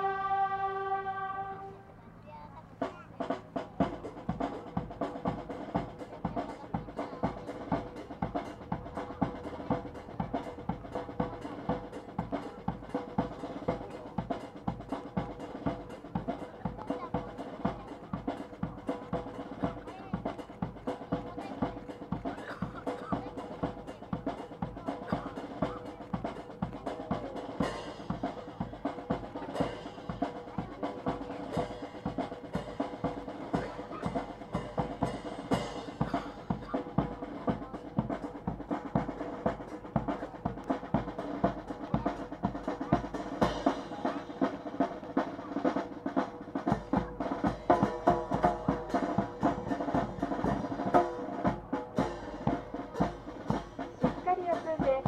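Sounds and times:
snare and bass drums marching: 0.0s - 1.7s, 2.7s - 55.0s
bugle playing: 0.0s - 2.0s.

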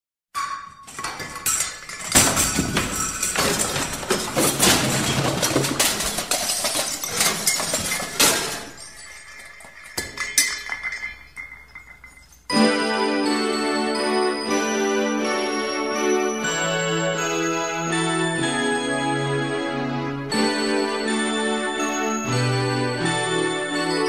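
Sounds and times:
glass clinking and breaking: 0.4s - 12.6s
music: 12.5s - 24.0s.

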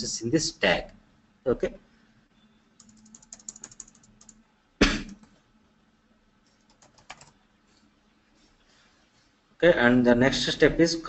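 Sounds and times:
keyboard keys tapping: 2.8s - 4.4s, 6.6s - 7.3s.

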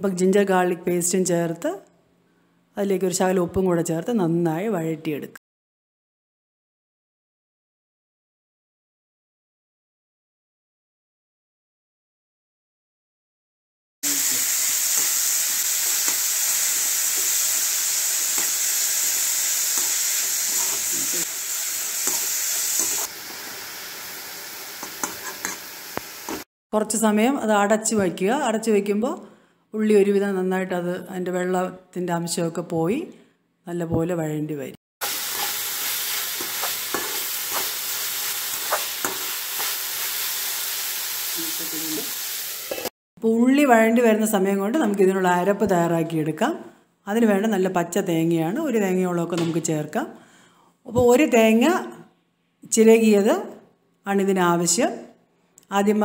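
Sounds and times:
onions sizzling in hot oil: 14.0s - 26.5s, 35.0s - 42.9s
metal spatula scraping a wok: 14.4s - 21.3s, 22.0s - 23.4s, 24.8s - 26.4s, 35.0s - 40.3s
metal spoon scraping pan: 19.6s - 21.2s, 22.0s - 23.1s, 24.8s - 25.7s, 35.0s - 37.8s, 38.5s - 39.8s.

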